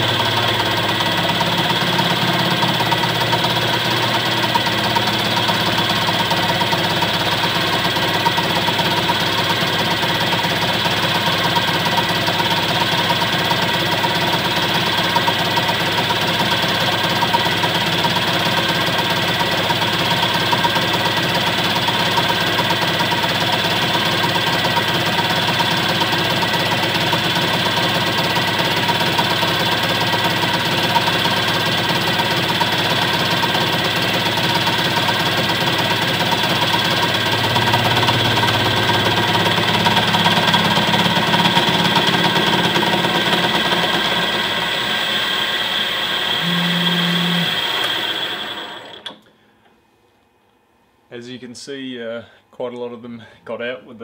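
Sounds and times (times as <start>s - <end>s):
mill cutting metal: 0.0s - 49.2s
spindle running: 0.0s - 49.2s
steady high tones: 46.4s - 48.7s.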